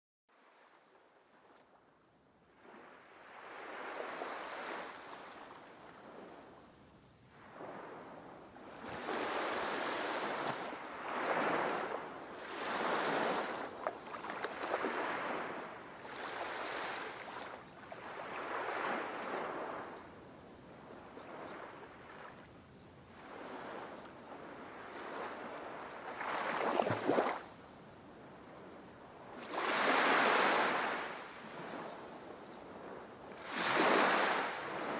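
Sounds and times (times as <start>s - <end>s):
sea waves breaking: 8.8s - 19.9s, 24.7s - 27.5s, 29.4s - 31.8s, 33.4s - 34.9s.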